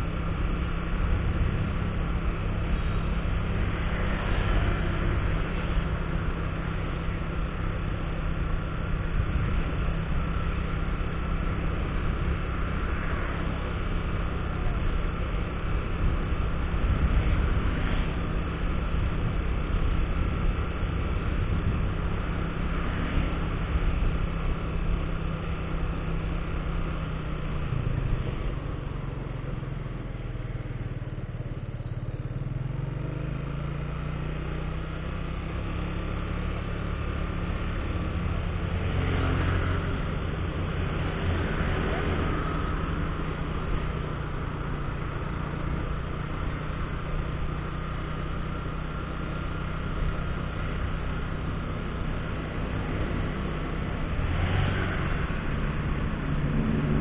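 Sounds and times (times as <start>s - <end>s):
motorcycle engine running: 0.0s - 57.0s
road noise: 0.0s - 57.0s
wind noise: 15.1s - 24.4s.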